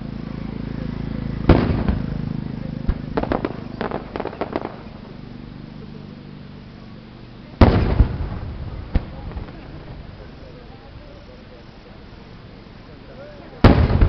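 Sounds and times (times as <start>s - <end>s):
fireworks booming: 1.4s - 5.2s, 7.6s - 14.0s
sharp fireworks pops: 1.4s - 5.2s, 7.6s - 10.8s, 13.6s - 14.0s.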